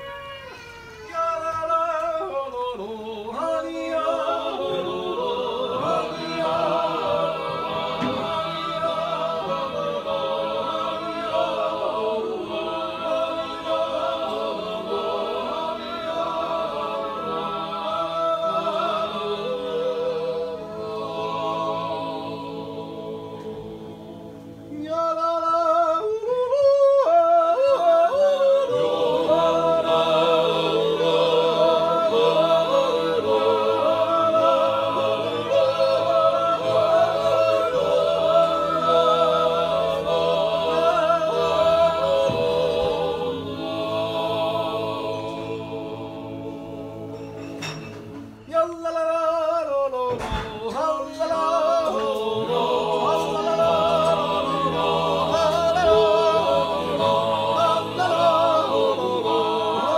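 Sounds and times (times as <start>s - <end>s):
men's choir yodelling: 1.4s - 23.7s, 27.6s - 47.2s, 50.6s - 59.9s.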